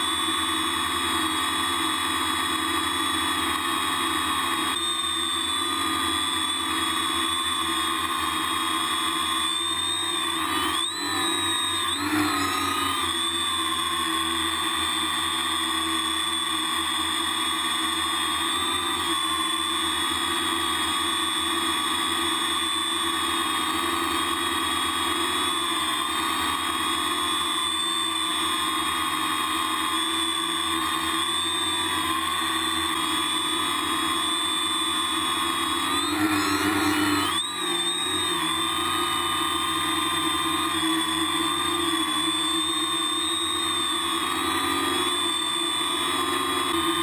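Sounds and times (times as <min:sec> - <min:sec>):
drone propellers buzzing: 0:30.8 - 0:47.0.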